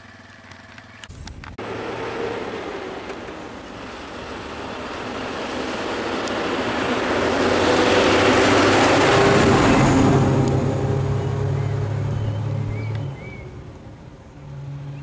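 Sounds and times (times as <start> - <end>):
bus engine running: 0.0 - 15.0
tyres rushing on road: 1.6 - 15.0.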